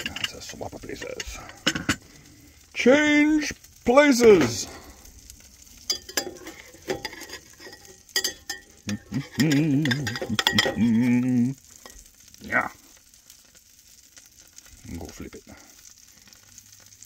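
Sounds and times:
butter sizzling in a pan: 0.0 - 17.0
spatula scraping ceramic bowl: 6.0 - 10.8
man humming: 8.8 - 11.6.

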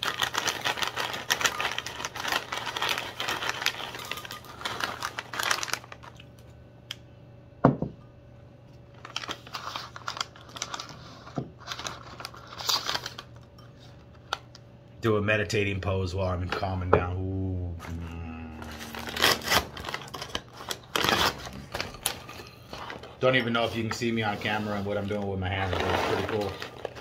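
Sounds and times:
popcorn pouring into bowl: 0.0 - 6.2, 18.8 - 27.0
plastic snack bag crinkling: 0.0 - 6.4, 8.9 - 14.4, 18.6 - 27.0.

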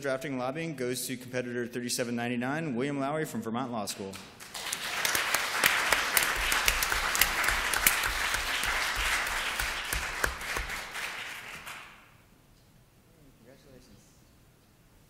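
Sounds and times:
audience applauding: 4.4 - 12.1.

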